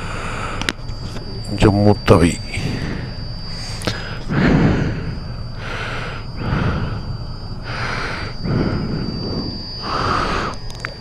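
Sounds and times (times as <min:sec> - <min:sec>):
faint high whine: 0:00.0 - 0:11.0
low rumble: 0:02.4 - 0:11.0
person breathing into microphone: 0:02.6 - 0:10.6.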